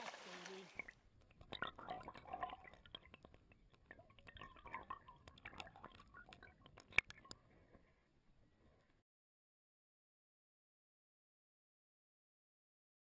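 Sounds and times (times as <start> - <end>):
water splashing and dripping: 0.0 - 7.6
small clicks: 0.7 - 7.5.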